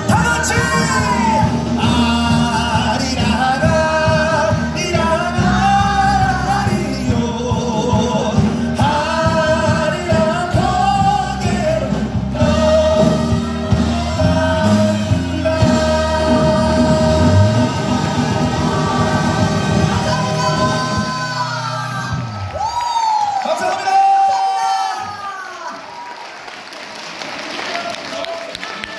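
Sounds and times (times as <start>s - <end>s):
person singing with vibrato: 0.0s - 22.5s.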